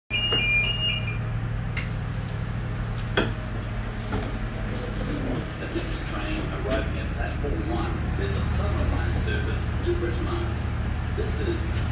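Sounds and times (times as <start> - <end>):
two-tone warning beeps: 0.1 - 1.3
steady low hum: 0.2 - 11.9
train door hiss: 1.8 - 3.2.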